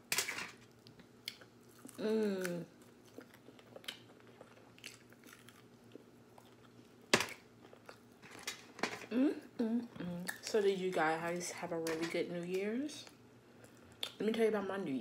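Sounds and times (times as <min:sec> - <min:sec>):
soft chewing: 0:00.6 - 0:08.2, 0:13.0 - 0:14.2
person humming: 0:02.0 - 0:02.8, 0:09.1 - 0:10.3.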